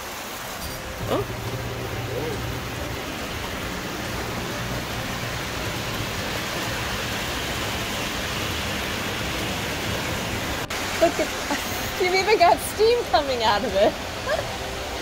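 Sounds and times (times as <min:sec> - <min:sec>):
low steady hum: 0:00.6 - 0:11.4.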